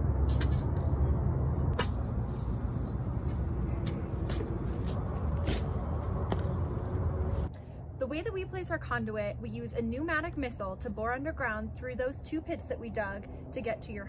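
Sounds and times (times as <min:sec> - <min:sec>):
low rumble: 0:00.0 - 0:08.5
spade chopping into soil: 0:01.7 - 0:02.0.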